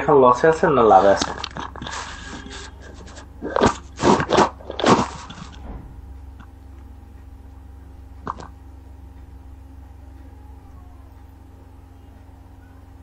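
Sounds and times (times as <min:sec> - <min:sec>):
steady low hum: 0:00.0 - 0:13.0
loud crunching noises: 0:01.1 - 0:05.7.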